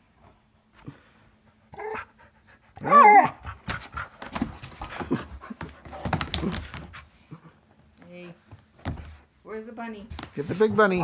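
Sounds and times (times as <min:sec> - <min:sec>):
dog whining: 0:01.7 - 0:02.2, 0:02.8 - 0:03.5
knocks and scuffing: 0:03.7 - 0:07.1, 0:08.4 - 0:09.3, 0:10.0 - 0:11.0.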